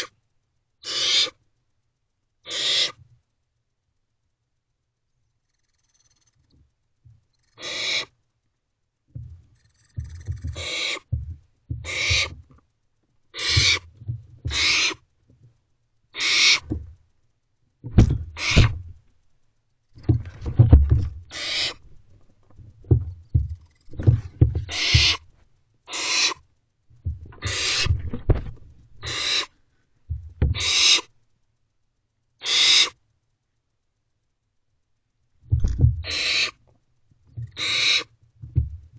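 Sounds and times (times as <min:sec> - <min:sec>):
owlets hissing screeches: 0:00.8 - 0:01.4, 0:02.5 - 0:03.0, 0:07.5 - 0:08.1, 0:10.5 - 0:11.1, 0:11.8 - 0:12.3, 0:13.4 - 0:13.8, 0:14.5 - 0:15.0, 0:16.2 - 0:16.7, 0:18.4 - 0:18.7, 0:21.3 - 0:21.8, 0:24.7 - 0:25.2, 0:25.9 - 0:26.4, 0:27.4 - 0:28.0, 0:29.0 - 0:29.5, 0:30.6 - 0:31.1, 0:32.4 - 0:33.0, 0:36.0 - 0:36.6, 0:37.5 - 0:38.1
low thumps in nest box: 0:09.1 - 0:12.6, 0:13.4 - 0:14.8, 0:16.6 - 0:17.0, 0:17.8 - 0:19.1, 0:20.0 - 0:25.3, 0:26.9 - 0:29.2, 0:30.1 - 0:30.8, 0:35.4 - 0:36.3, 0:38.4 - 0:38.9.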